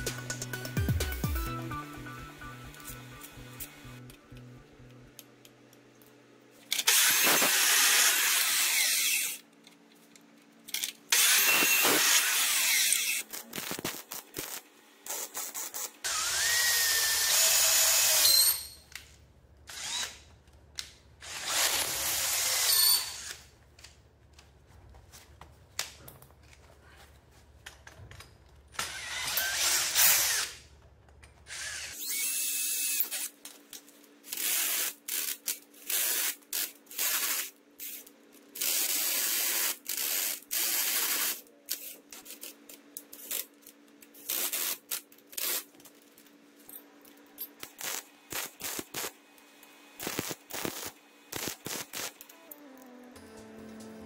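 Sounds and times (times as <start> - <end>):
cordless drill bursts: 6.9 - 9.4, 16.1 - 18.6.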